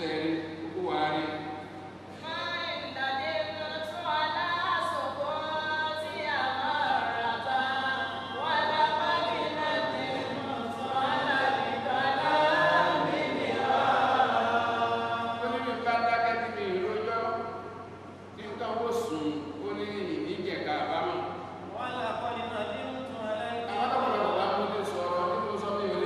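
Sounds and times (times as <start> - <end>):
man chanting melodically: 18.4 - 26.0.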